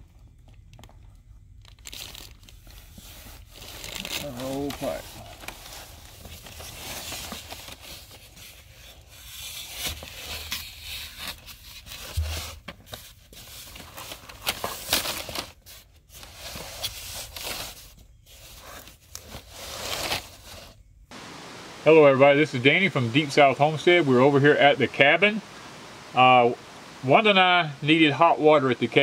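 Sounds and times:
foam insulation rubbing and scraping: 0:02.5 - 0:20.9.

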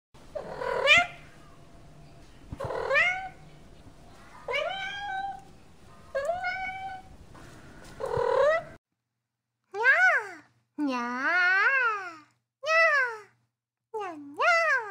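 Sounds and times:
cat meowing: 0:00.4 - 0:01.6, 0:02.6 - 0:03.4, 0:04.3 - 0:05.5, 0:06.1 - 0:07.2.

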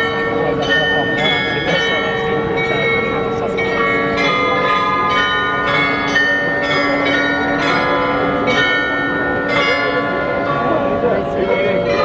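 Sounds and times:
carillon bells playing a tune: 0:00.0 - 0:12.0.

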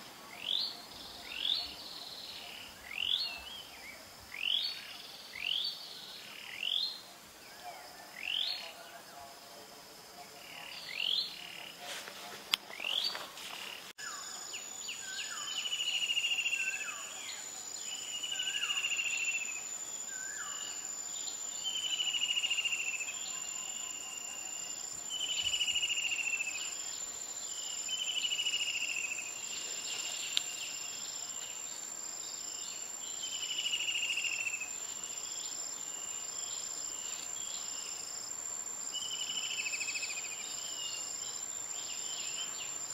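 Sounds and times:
buzzy insect call: 0:00.0 - 0:42.9
insect high whine: 0:12.7 - 0:42.9
rising insect chirps: 0:12.7 - 0:42.9.

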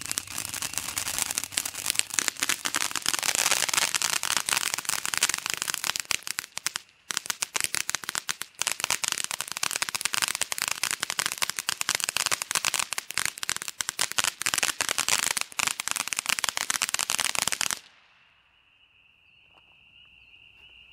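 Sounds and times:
insect chirring: 0:00.0 - 0:10.4, 0:18.3 - 0:20.9
fireworks fountain crackling: 0:00.0 - 0:18.3.

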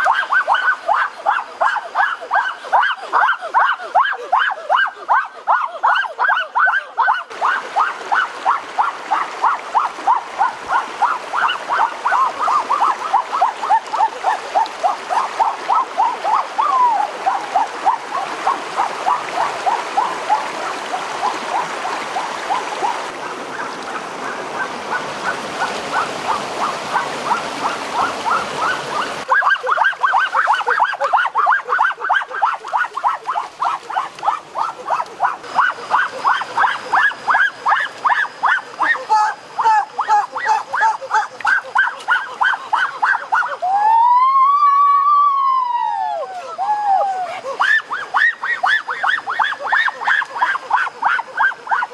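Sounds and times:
stream running over rocks: 0:00.0 - 0:45.1, 0:46.3 - 0:51.9
rapid repeating animal call: 0:00.0 - 0:51.9.

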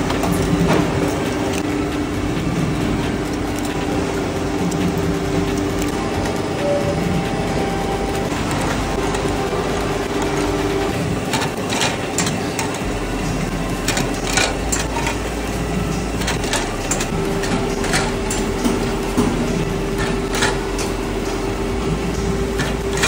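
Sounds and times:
machine humming: 0:00.0 - 0:23.0
metallic clicks and clatter: 0:08.2 - 0:23.0.

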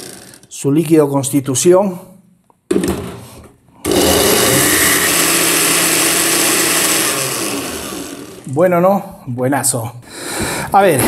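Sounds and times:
blender pureeing fruit: 0:03.9 - 0:08.5.

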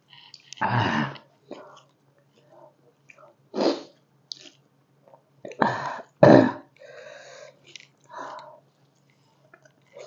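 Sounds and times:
woman's throat sounds while eating: 0:05.5 - 0:06.8.

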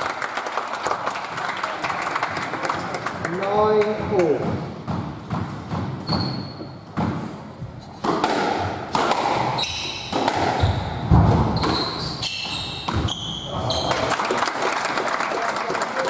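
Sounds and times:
squash ball hits: 0:03.9 - 0:13.3
shoes squeaking on wooden floor: 0:04.1 - 0:08.0, 0:09.4 - 0:14.0.

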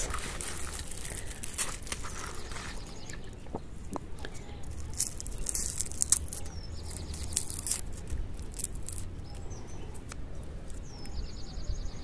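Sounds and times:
dry leaves crackling and rustling: 0:00.0 - 0:03.3, 0:04.4 - 0:09.4
small bird chirping: 0:01.9 - 0:12.0.

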